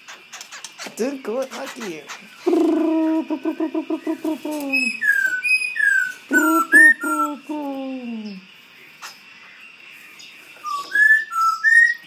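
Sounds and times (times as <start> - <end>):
songbird pulsing trill: 0.3 - 12.0.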